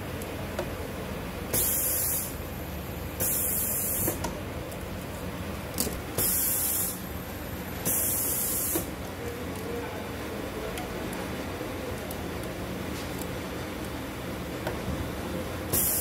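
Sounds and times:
air hiss bursts: 1.5s - 2.4s, 3.2s - 4.2s, 6.1s - 7.0s, 7.8s - 8.9s, 15.7s - 16.0s.

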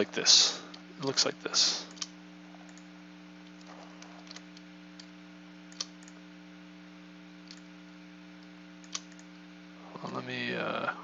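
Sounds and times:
steady low hum: 0.0s - 11.0s
computer mouse clicks: 1.9s - 5.1s, 5.7s - 6.2s, 7.4s - 7.7s, 8.4s - 9.4s.

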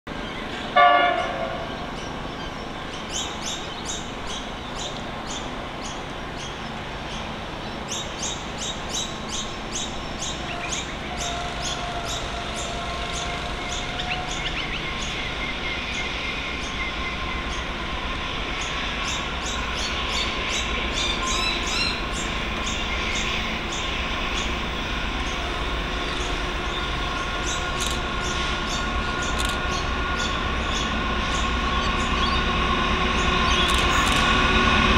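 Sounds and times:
train rumbling and humming: 0.1s - 34.9s
train horn blast: 0.7s - 1.8s, 10.5s - 14.5s
birds chirping: 1.6s - 32.6s.

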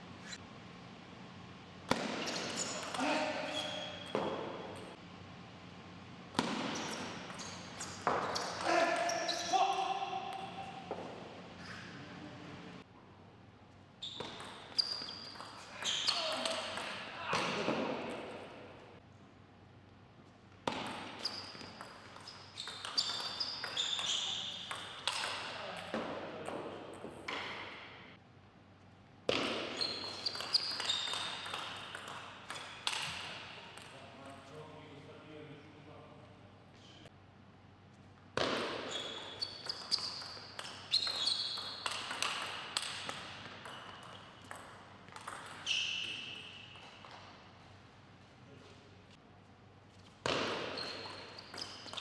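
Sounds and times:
shoes squeaking on floor: 2.0s - 4.9s, 6.4s - 9.9s, 14.0s - 16.8s, 21.0s - 25.6s, 29.6s - 31.6s, 38.6s - 42.2s, 45.5s - 47.3s, 49.9s - 52.0s.

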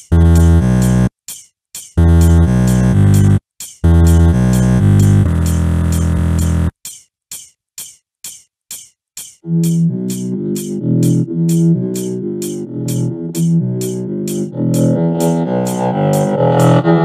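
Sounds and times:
synthesizer bass and chords: 0.0s - 1.1s, 2.0s - 6.7s, 9.4s - 17.0s
quick percussion ticks: 0.0s - 16.8s.

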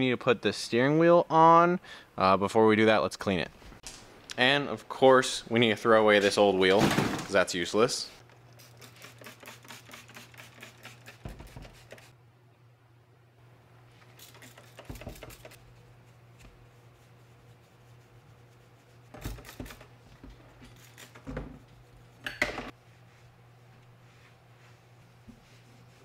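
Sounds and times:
steady low hum: 7.8s - 26.0s
spray bottle spritzing: 8.5s - 12.1s, 14.1s - 15.6s, 19.2s - 19.8s, 20.7s - 21.2s
cloth wiping: 14.4s - 19.8s, 22.8s - 26.0s.

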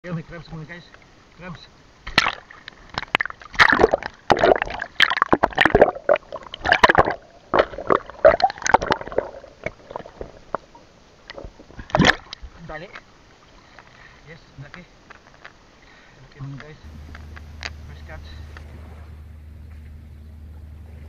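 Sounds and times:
water sloshing and splashing: 0.8s - 16.0s, 18.5s - 19.2s.

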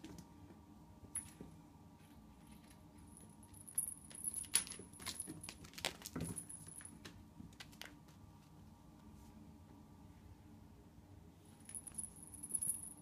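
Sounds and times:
small bell jingling: 11.6s - 13.0s.

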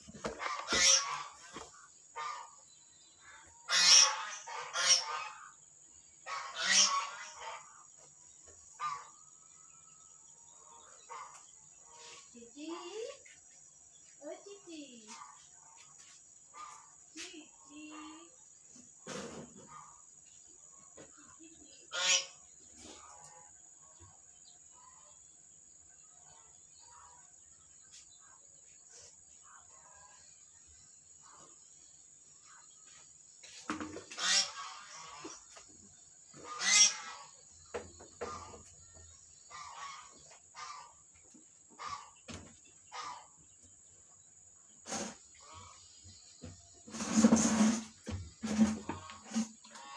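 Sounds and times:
harsh honking bird calls: 3.7s - 5.6s, 6.3s - 7.8s, 21.9s - 22.5s, 36.4s - 37.4s.

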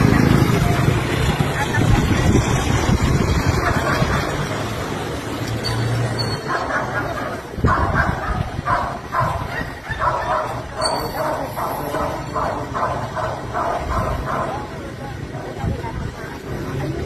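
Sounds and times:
dog barking: 6.4s - 14.7s.

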